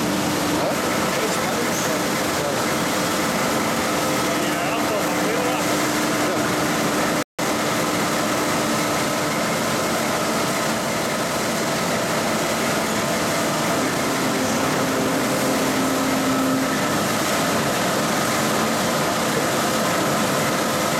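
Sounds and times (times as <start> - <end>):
steel strip over rollers: 12.6 - 18.8.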